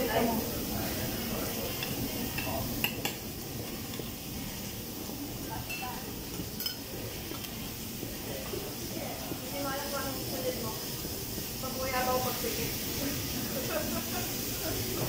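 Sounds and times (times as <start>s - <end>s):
steady hiss: 0.0s - 15.0s
metal utensils clinking on griddle: 5.6s - 6.0s, 6.6s - 6.8s.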